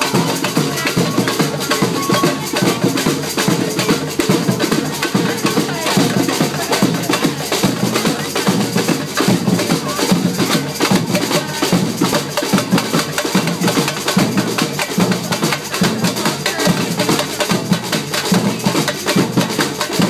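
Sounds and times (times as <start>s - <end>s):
fast drum rhythm: 0.0s - 20.0s.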